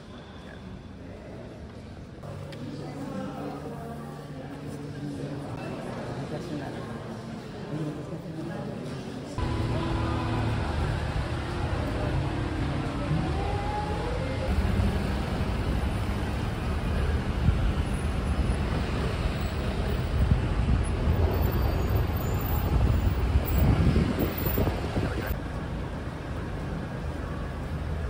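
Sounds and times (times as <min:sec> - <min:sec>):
city traffic rumble: 0:08.9 - 0:28.0.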